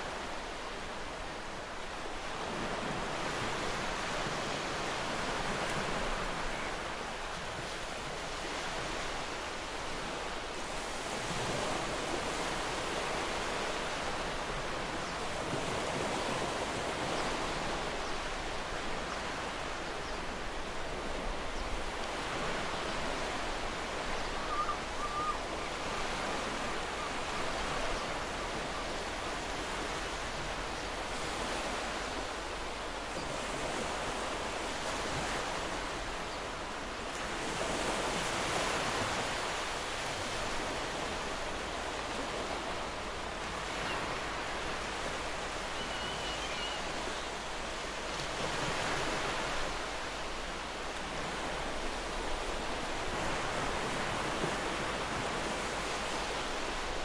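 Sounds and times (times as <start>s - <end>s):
faint chirp: 45.7s - 46.9s.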